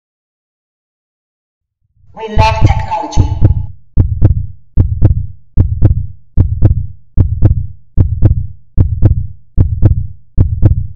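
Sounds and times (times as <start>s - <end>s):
heartbeat-like double thump: 2.4s - 10.9s.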